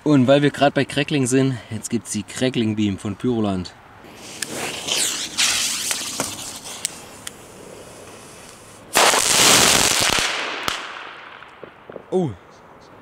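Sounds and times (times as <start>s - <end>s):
fuse hissing and spitting: 4.1s - 8.9s
sharp pops: 4.1s - 12.3s
firework dense crackling burst: 4.1s - 12.4s.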